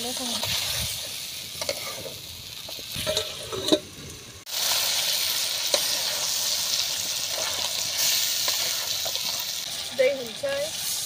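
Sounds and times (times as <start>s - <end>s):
curry sizzling in a pan: 0.0s - 11.0s
metal spatula scraping pan: 1.6s - 2.2s, 3.0s - 3.9s.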